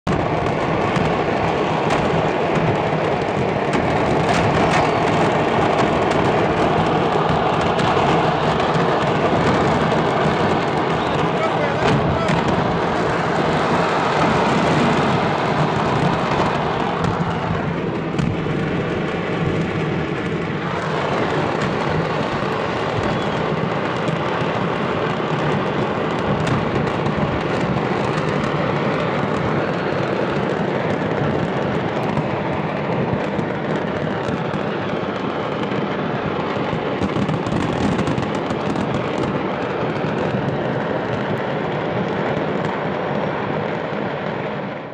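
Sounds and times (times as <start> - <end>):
moving car rumble: 0.0 - 34.6
fireworks exploding: 0.0 - 44.9.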